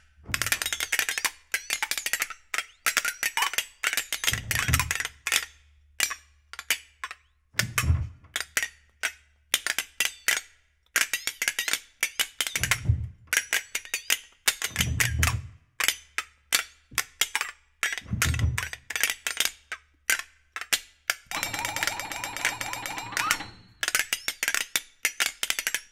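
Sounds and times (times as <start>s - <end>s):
flexatone clicks and rattles: 21.3s - 25.8s.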